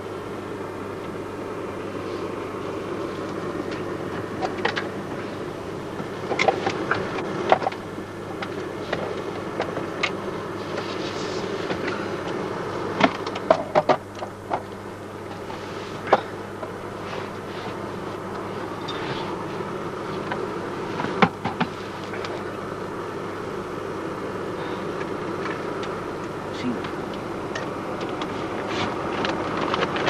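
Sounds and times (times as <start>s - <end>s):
clothing and sleeping bag rustling: 15.4s - 16.1s, 16.9s - 22.7s, 28.3s - 30.0s.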